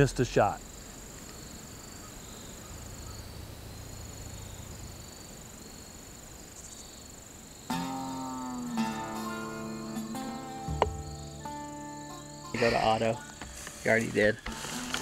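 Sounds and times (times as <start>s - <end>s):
insect chirring: 0.0s - 15.0s
background music: 7.7s - 15.0s.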